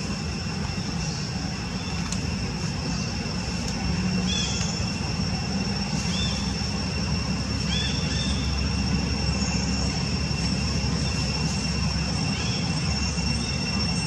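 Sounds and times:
continuous low rumble: 0:00.0 - 0:14.0
steady high-pitched hum: 0:00.0 - 0:14.0.

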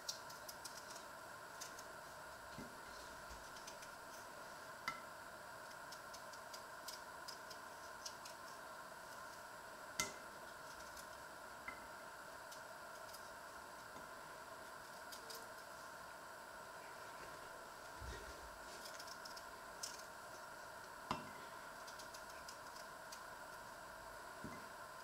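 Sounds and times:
faint steady hum: 0:00.0 - 0:25.0.

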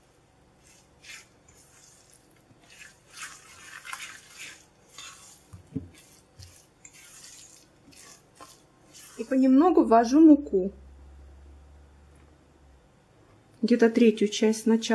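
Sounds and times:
spatula squelching and scraping bowl: 0:00.0 - 0:10.3.

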